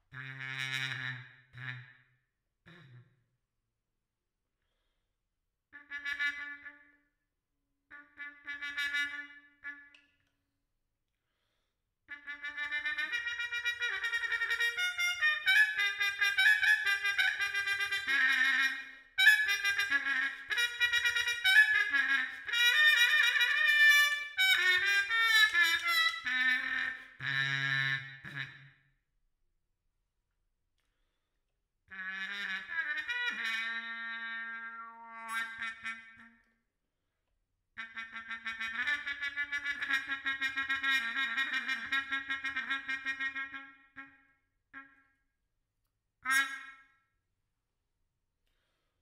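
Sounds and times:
solo trumpet playing: 5.8 - 7.0, 7.9 - 10.1, 12.1 - 28.7, 31.9 - 36.4, 37.8 - 44.1.

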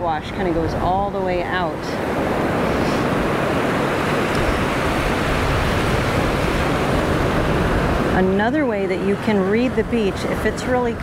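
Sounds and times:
small waves breaking on beach: 0.0 - 11.0.

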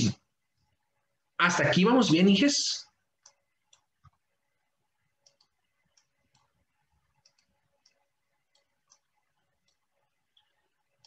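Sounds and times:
faint clicks: 3.2 - 4.2, 5.2 - 11.0.

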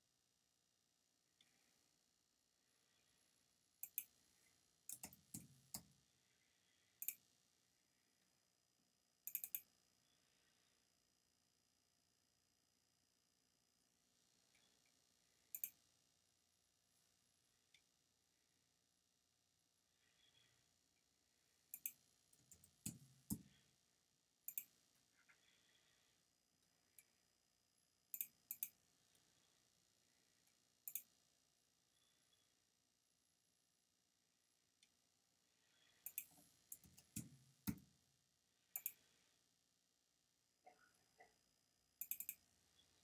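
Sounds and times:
computer mouse clicks: 3.8 - 4.2, 4.9 - 5.9, 7.0 - 7.2, 9.3 - 9.7, 15.5 - 15.8, 21.7 - 23.6, 24.5 - 24.7, 28.1 - 28.8, 30.9 - 31.1, 36.0 - 37.9, 38.7 - 39.1, 42.0 - 42.4.

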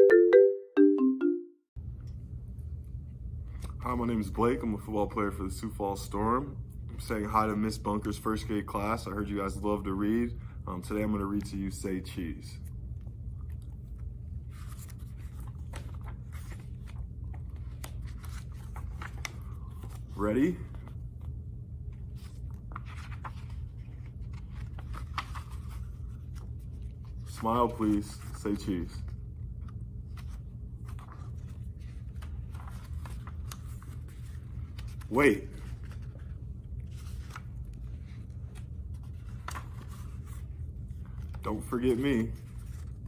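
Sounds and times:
paper pages rustling: 13.8 - 43.0.

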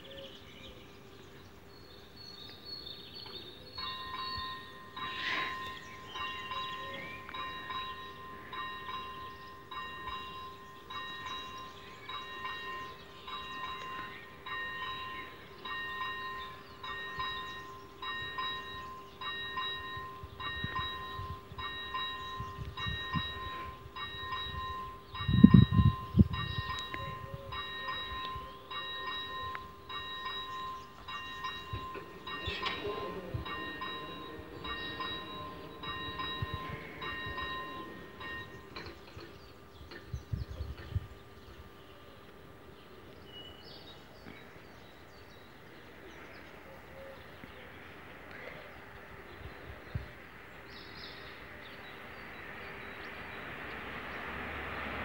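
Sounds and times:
level crossing warning bell ringing: 3.6 - 40.2.

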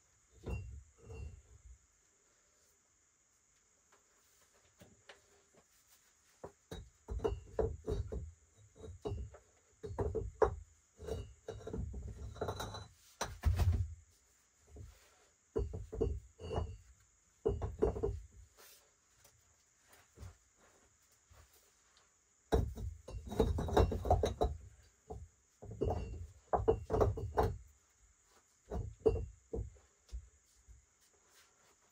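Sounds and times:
stones clunking together: 22.5 - 27.7.

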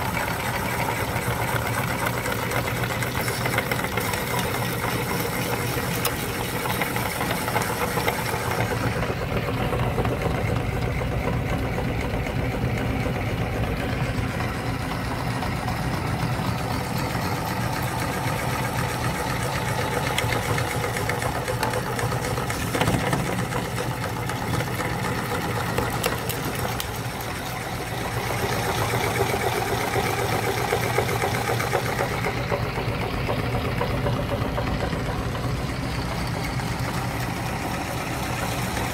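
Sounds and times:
auger grinding frozen bars: 0.0 - 14.6, 15.5 - 38.9
meat grinder motor humming: 0.0 - 38.9.

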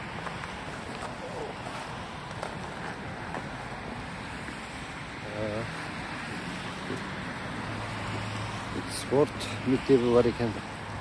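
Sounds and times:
traffic on slushy road: 0.0 - 11.0
wind: 0.0 - 11.0.

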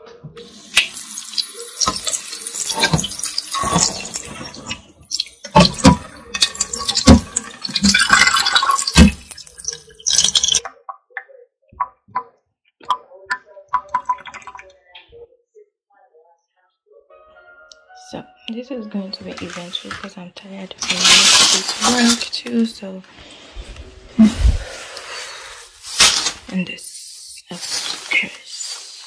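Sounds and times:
tap water running into sink: 0.4 - 10.7, 20.8 - 22.2
small taps and drips: 8.9 - 15.1.

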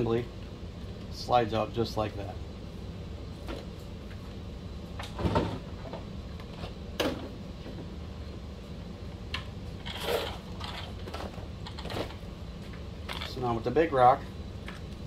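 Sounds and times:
steady low hum: 0.0 - 15.0
parts knocking and clicking: 10.6 - 13.4.

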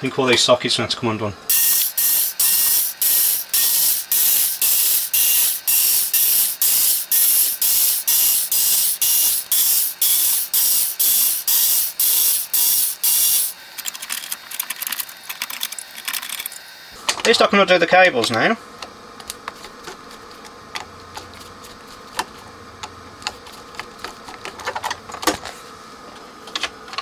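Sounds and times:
electric screwdriver pulsing: 1.5 - 16.6.

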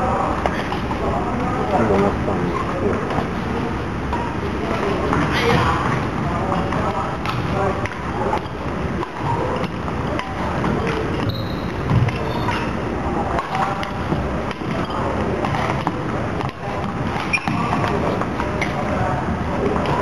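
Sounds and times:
racket hitting shuttlecock: 12.0 - 18.9.

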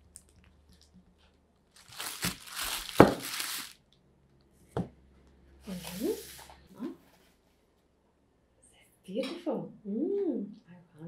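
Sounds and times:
plastic wrapping crinkling: 0.0 - 3.9.

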